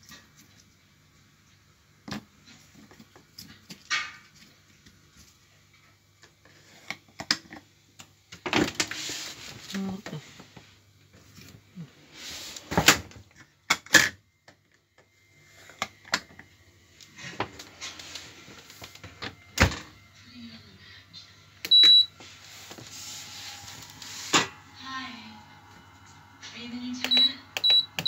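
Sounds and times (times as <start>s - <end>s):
faint low hum: 13.1s - 28.0s.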